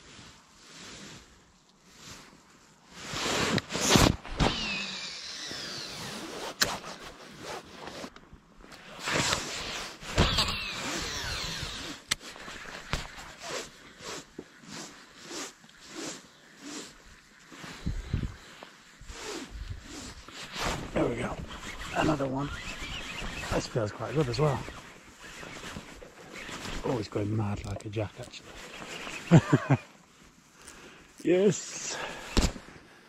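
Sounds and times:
reel ratchety zipping: 0:03.2 - 0:08.1, 0:08.7 - 0:17.8, 0:19.1 - 0:29.5
fishing reel spool whining: 0:04.4 - 0:06.4, 0:10.2 - 0:14.2, 0:21.4 - 0:27.0, 0:28.5 - 0:29.5.

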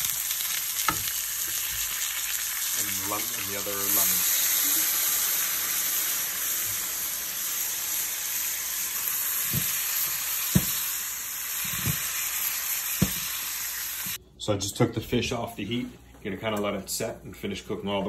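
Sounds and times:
fish sizzling in oil: 0:00.0 - 0:14.2.

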